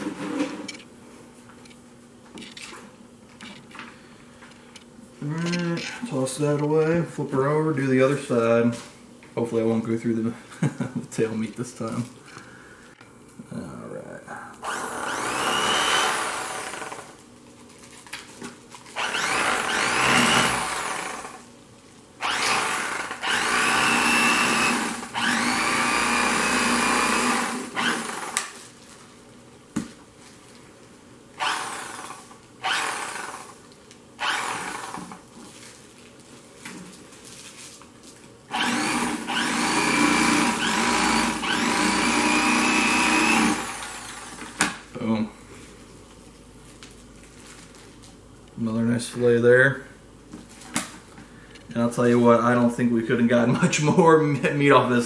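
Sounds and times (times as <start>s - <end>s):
electric fillet knife whining: 14.6s - 17.1s, 19.0s - 21.4s, 22.2s - 28.5s, 31.4s - 33.6s, 34.2s - 35.2s, 38.5s - 44.6s.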